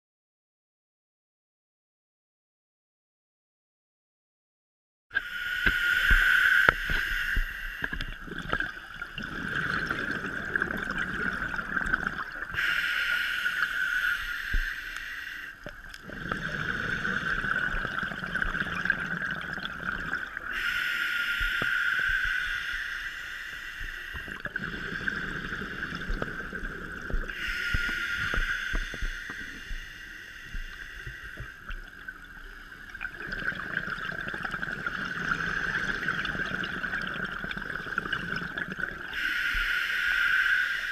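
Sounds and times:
regulator hissing inhalations: 5.2 - 8.3, 9.4 - 18.6, 20.4 - 32.9, 39.0 - 40.9
gurgling exhaled bubbles: 7.8 - 14.7, 15.6 - 20.7, 24.1 - 29.9, 30.5 - 39.2.

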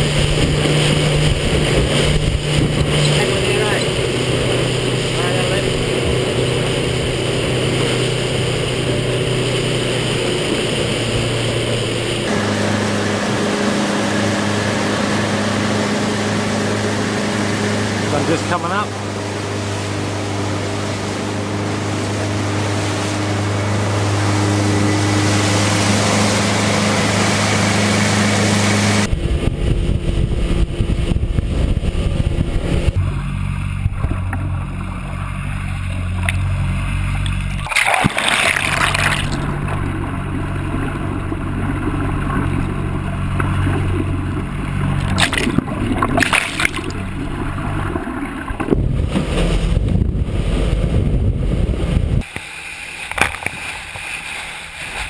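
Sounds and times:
motorboat engine hum: 0.0 - 55.0
muffled underwater engine rumble: 0.0 - 55.0
water rushing along hull: 0.0 - 55.0
water splashes: 0.0 - 55.0
bubbling water: 33.8 - 49.2.

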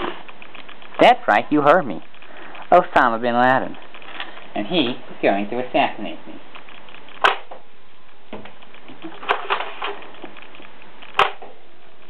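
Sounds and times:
faint rattle: 0.0 - 2.8, 3.6 - 4.6
sharp clicks: 0.0 - 4.6, 6.4 - 12.0
steady hiss: 0.0 - 12.0.

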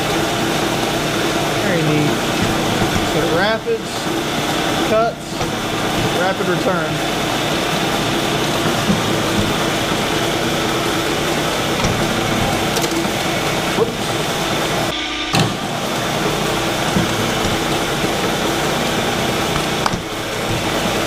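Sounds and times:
milling machine humming: 0.0 - 21.0.

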